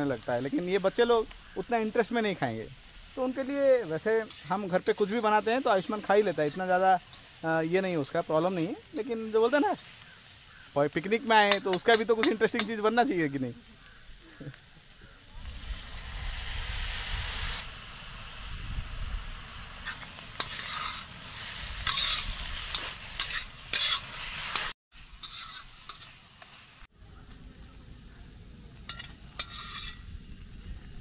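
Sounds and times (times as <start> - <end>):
vegetables sizzling in a pan: 0.0 - 31.0
metal spatula scraping pan: 19.8 - 21.1, 21.8 - 26.1, 28.9 - 30.1.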